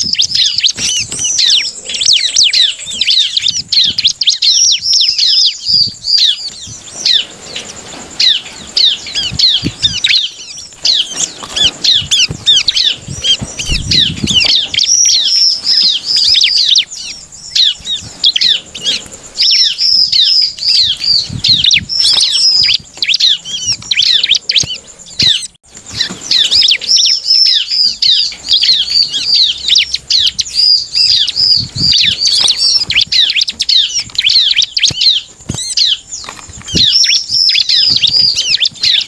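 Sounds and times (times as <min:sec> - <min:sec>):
bird singing high chirps: 0:00.0 - 0:39.0
wing flaps: 0:05.7 - 0:16.7.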